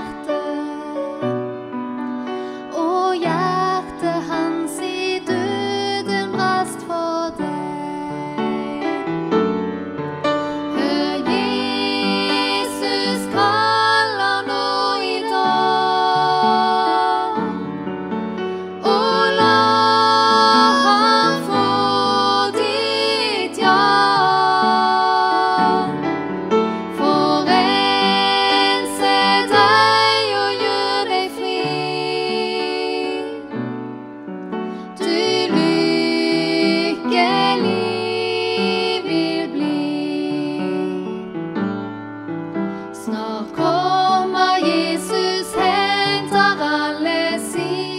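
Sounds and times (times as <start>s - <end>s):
women singing: 0.0s - 1.5s, 2.6s - 9.3s, 10.4s - 17.8s, 18.6s - 33.6s, 34.8s - 41.3s, 43.0s - 47.9s
upright piano: 0.0s - 47.9s.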